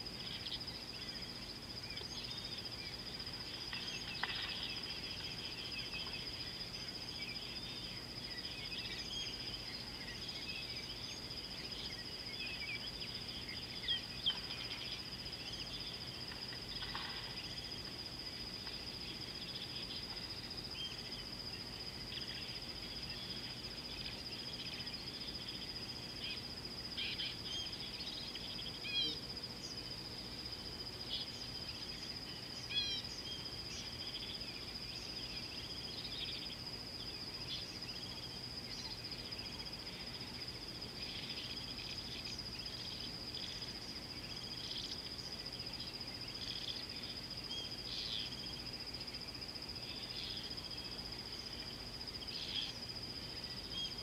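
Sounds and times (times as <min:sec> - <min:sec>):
bird calls and chirps: 0:00.2 - 0:26.4, 0:27.0 - 0:29.9, 0:31.1 - 0:48.7.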